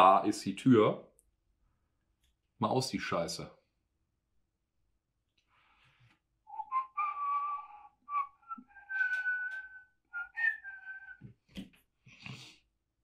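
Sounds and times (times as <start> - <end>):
person whistling a tune: 6.5 - 11.3.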